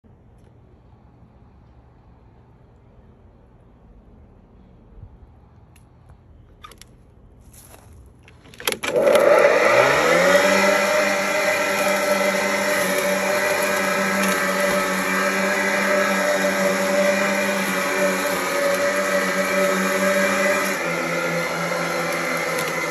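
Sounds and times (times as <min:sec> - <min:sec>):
lawn mower motor whine: 0:08.3 - 0:22.9.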